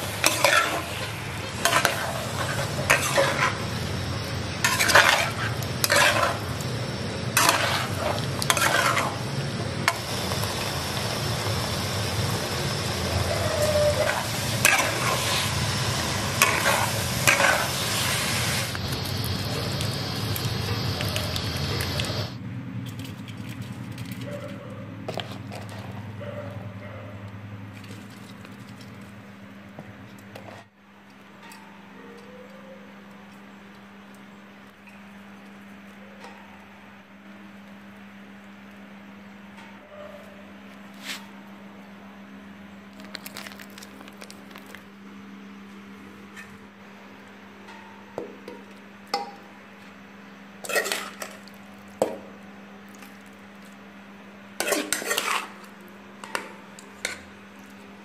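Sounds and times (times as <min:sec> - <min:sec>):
steady low hum: 0:00.0 - 0:24.0
rice grains pattering and rustling: 0:42.9 - 0:45.0.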